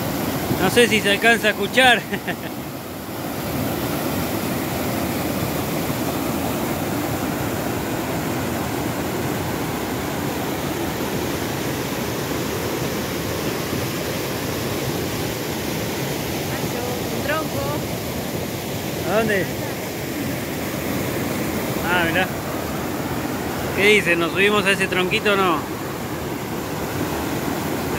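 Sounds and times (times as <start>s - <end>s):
waterfall rushing: 0.0s - 27.9s.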